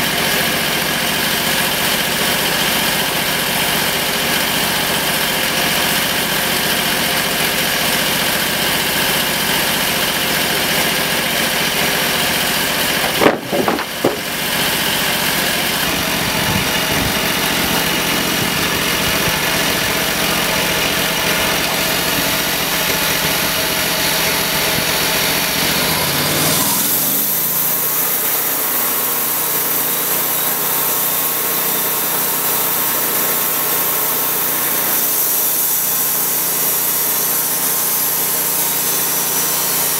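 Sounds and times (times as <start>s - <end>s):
engine running steadily: 0.0s - 39.9s
clatter: 12.8s - 23.6s.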